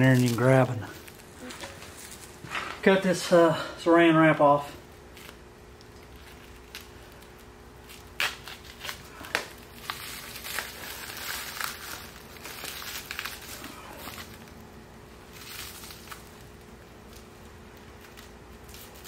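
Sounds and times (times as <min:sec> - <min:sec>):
plastic wrap crinkling: 0:00.0 - 0:02.8, 0:05.1 - 0:19.0.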